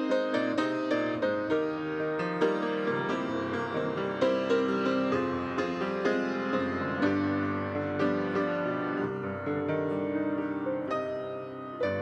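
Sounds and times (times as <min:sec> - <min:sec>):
piano playing hymn accompaniment: 0:00.0 - 0:12.0.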